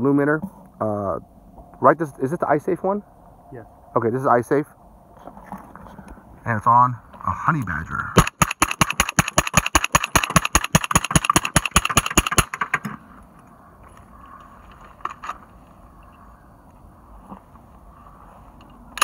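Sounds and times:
rapid rifle fire: 0:08.2 - 0:12.8.

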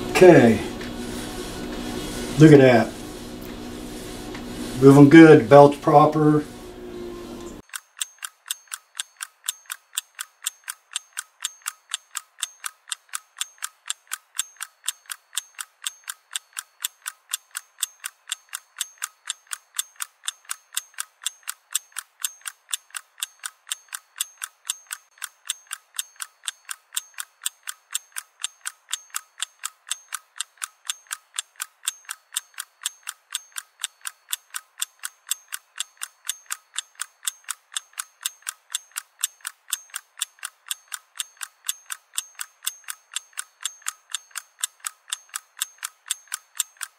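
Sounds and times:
rapid mechanical clicking: 0:07.6 - 0:46.9.

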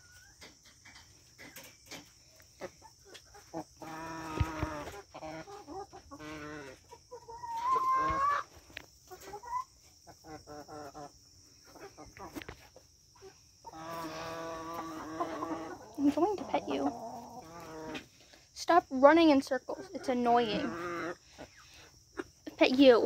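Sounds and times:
chickens clucking: 0:00.0 - 0:23.0.

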